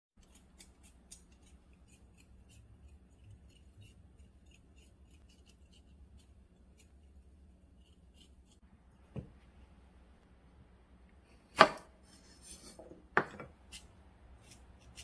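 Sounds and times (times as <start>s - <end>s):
knife scraping cucumber skin: 0.2s - 8.6s, 13.7s - 15.0s.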